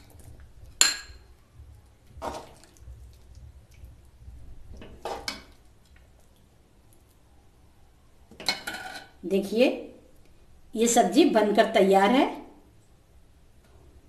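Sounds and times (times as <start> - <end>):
ladle scraping and scooping curry: 2.1 - 3.9.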